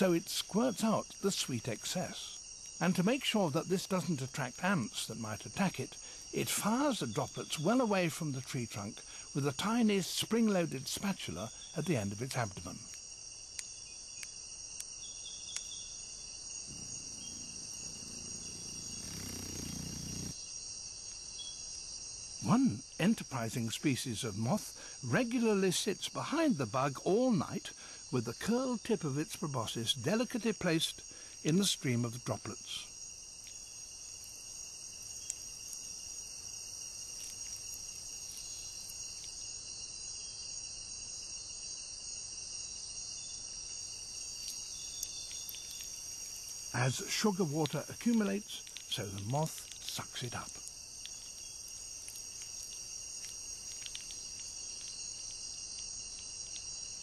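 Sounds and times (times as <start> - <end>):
crickets trilling: 0.0 - 57.0
insects chirping chorus: 0.0 - 57.0
faint clicks: 47.2 - 56.7.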